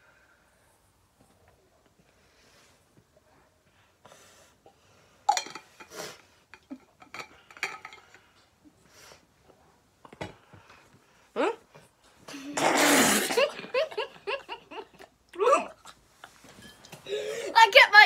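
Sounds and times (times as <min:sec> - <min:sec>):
metal bottles clinking: 0:05.3 - 0:05.9, 0:07.0 - 0:08.2.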